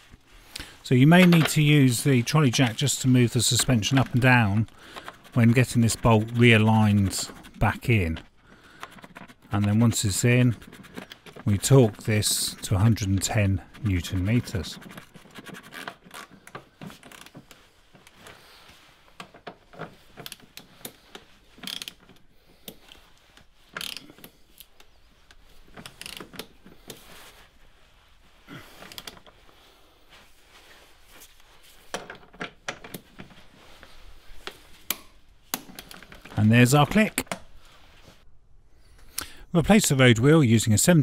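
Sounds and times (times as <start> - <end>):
ratcheting wrench clicking: 21.6 - 22.1, 23.8 - 24.2, 25.8 - 26.5.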